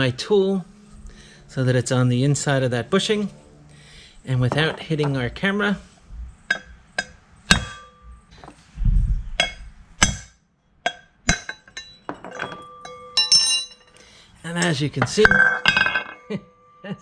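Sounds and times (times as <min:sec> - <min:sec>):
sledgehammer striking metal tool: 0:06.5 - 0:08.5, 0:09.4 - 0:14.0
metallic clinks with ring: 0:11.5 - 0:14.0.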